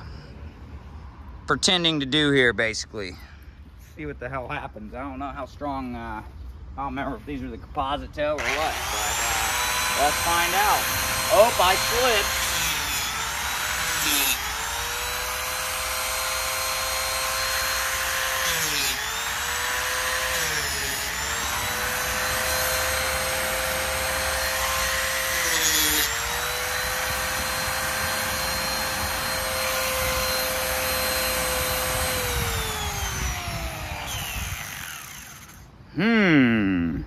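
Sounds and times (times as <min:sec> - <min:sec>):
power cutting tool whining: 0:08.4 - 0:35.7.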